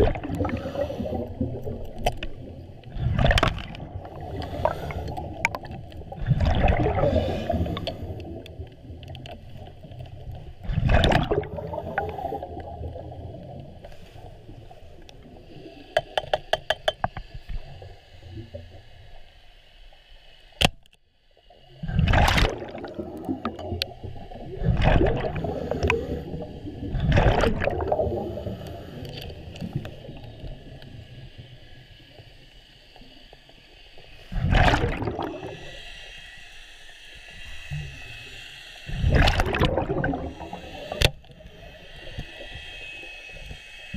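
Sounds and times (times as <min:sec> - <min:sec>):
underwater whooshes: 0:00.0 - 0:09.1, 0:10.6 - 0:14.5, 0:21.8 - 0:30.1, 0:34.3 - 0:35.8, 0:38.9 - 0:43.0
underwater rush of water: 0:00.0 - 0:16.3, 0:21.6 - 0:32.3, 0:33.1 - 0:36.4, 0:37.1 - 0:43.9.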